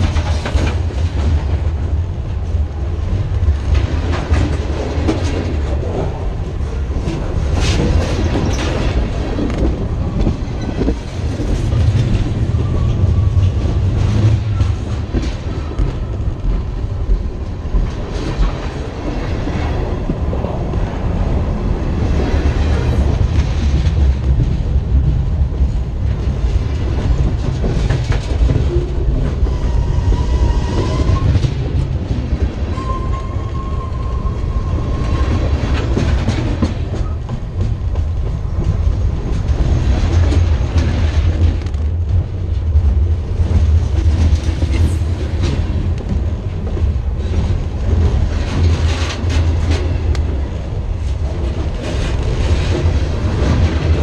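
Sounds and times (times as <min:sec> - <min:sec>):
steel wheels clacking on rail: 0:00.0 - 0:54.0
train low rumble: 0:00.0 - 0:54.0
faint high squeals: 0:32.7 - 0:35.5.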